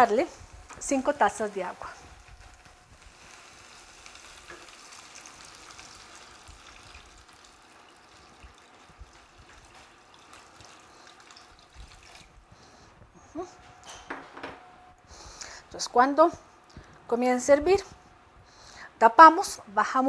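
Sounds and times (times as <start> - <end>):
water pouring into a pot: 4.0 - 12.4.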